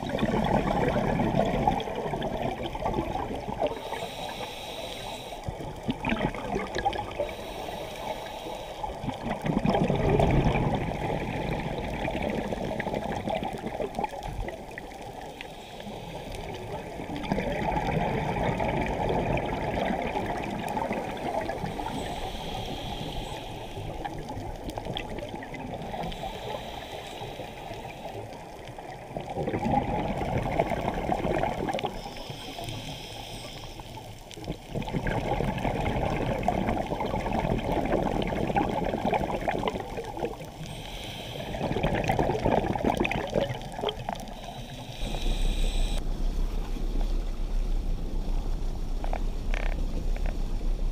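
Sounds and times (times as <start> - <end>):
underwater bubbles gurgling: 0.0 - 50.9
faint regulator hiss: 3.1 - 6.0, 6.7 - 9.4, 10.9 - 17.3, 19.8 - 29.3, 31.6 - 34.7, 39.6 - 42.4, 43.0 - 50.9.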